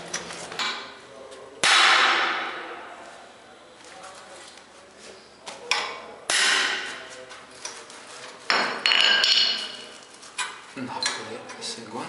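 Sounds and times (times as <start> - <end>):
hammer striking steel: 1.6 - 2.7, 5.7 - 7.0.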